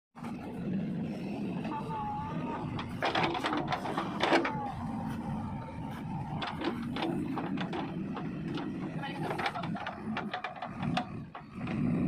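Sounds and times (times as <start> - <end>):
diesel engine running: 0.2 - 12.0
metallic knocks and clanks: 2.7 - 4.6, 6.3 - 11.8.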